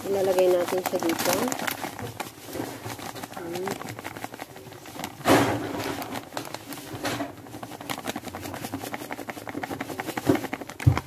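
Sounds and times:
flakes pattering on metal: 0.0s - 11.0s
plastic bag crinkling: 0.0s - 11.0s
thump: 5.2s - 5.9s.

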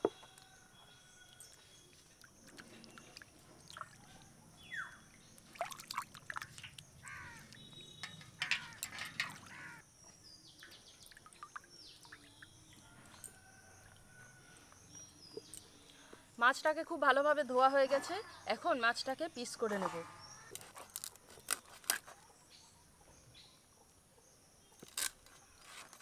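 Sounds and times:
water pouring and splashing: 5.4s - 9.7s.

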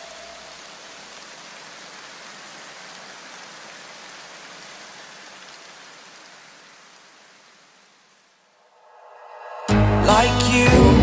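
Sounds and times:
white-noise hiss: 0.0s - 10.6s
background music: 8.8s - 11.0s.

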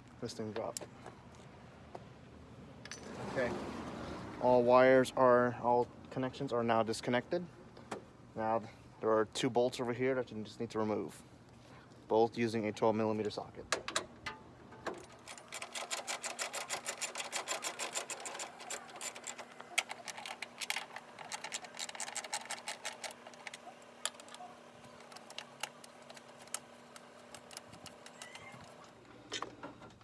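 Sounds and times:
socket ratchet clicking: 15.0s - 24.4s.

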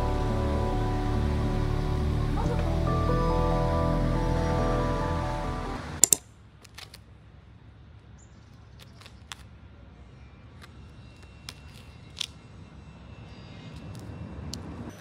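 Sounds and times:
background music: 0.0s - 6.0s.

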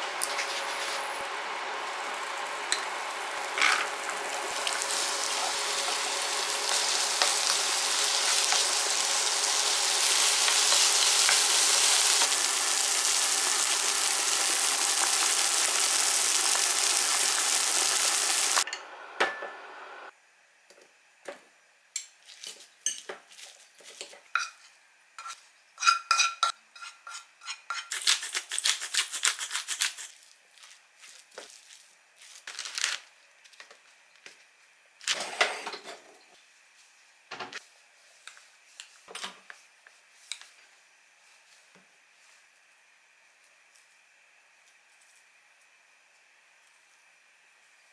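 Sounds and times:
vegetables sizzling in a pan: 0.0s - 18.7s
pot boiling: 0.0s - 18.8s
pepper grinder grinding: 2.7s - 18.2s, 27.8s - 30.1s.

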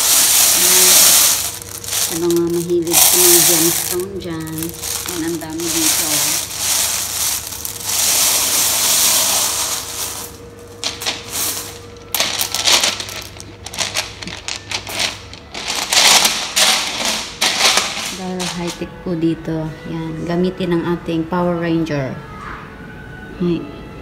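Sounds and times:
pebbles rustling hiss: 0.0s - 18.8s.

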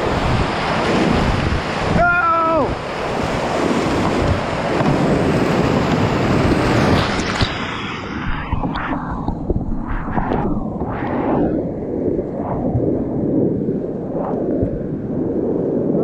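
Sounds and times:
whitewater rapids rushing: 0.0s - 9.0s
person shouting: 2.0s - 2.7s.

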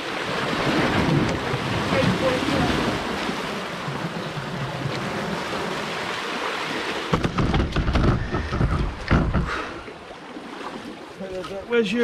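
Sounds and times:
sea surf washing over stone steps: 0.0s - 12.0s
low thumps on microphone: 7.1s - 9.6s.

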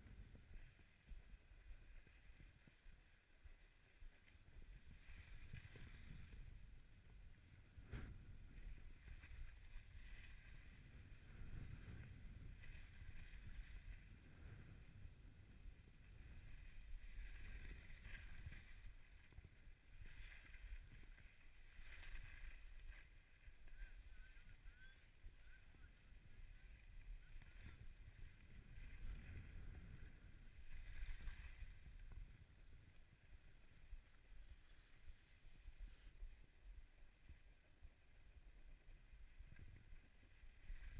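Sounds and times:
skis sliding over snow: 0.1s - 40.9s
low wind rumble: 3.6s - 40.9s.

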